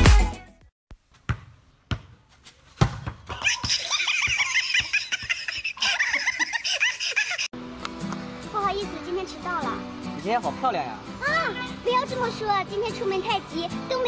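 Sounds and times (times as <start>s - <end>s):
basketball bouncing on concrete: 1.1s - 5.7s
hearty laughter: 3.4s - 7.5s.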